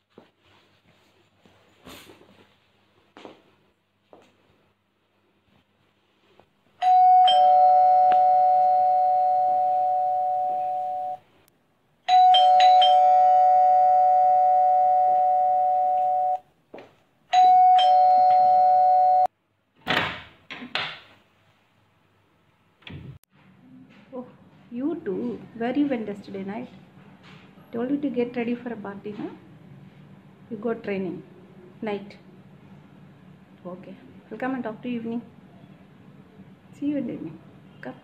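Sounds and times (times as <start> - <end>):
two-tone doorbell chime: 6.8 - 11.2, 12.1 - 16.4, 17.3 - 19.3.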